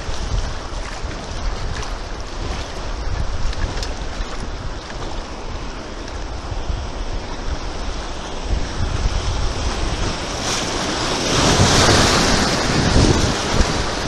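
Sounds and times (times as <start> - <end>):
river water rushing and splashing: 0.0 - 14.0
wind buffeting microphone: 0.0 - 14.0.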